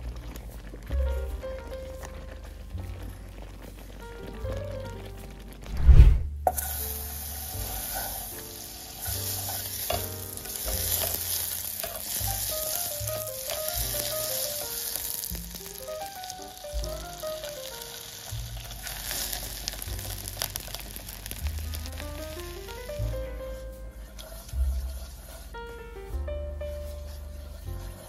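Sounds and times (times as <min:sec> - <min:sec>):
butter sizzling in a pot: 0:00.0 - 0:05.7, 0:06.4 - 0:28.0
sharp thump: 0:05.7 - 0:06.5
spatula scraping a pan: 0:06.5 - 0:22.0, 0:22.6 - 0:25.8, 0:26.7 - 0:28.0.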